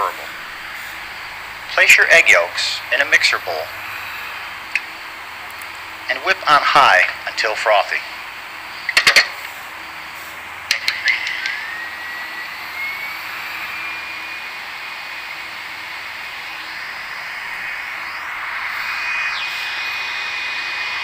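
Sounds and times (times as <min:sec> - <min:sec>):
steady rushing noise: 0:00.0 - 0:07.4, 0:08.1 - 0:21.0
stand mixer motor whine: 0:09.8 - 0:21.0.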